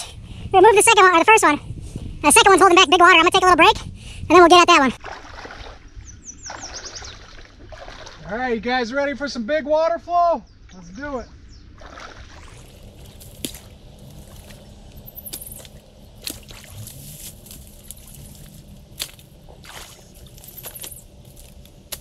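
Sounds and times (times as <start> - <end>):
water sloshing and trickling: 4.9 - 8.4, 11.7 - 22.0.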